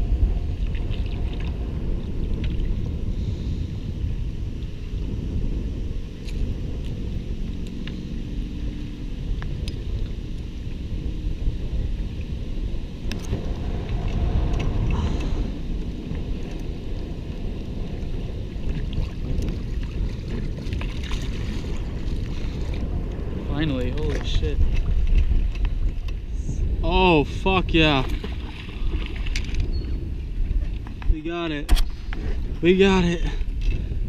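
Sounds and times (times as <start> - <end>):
wind buffeting microphone: 0.0 - 34.0
water slapping against hull: 0.5 - 2.9, 13.0 - 26.3, 27.9 - 32.6.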